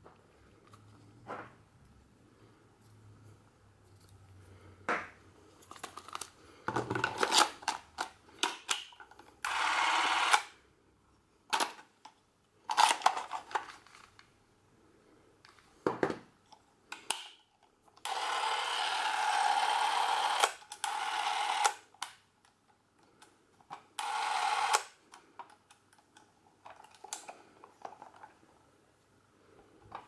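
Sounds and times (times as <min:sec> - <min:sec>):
film camera motor running: 0:09.4 - 0:10.4, 0:18.0 - 0:21.8, 0:24.0 - 0:24.8.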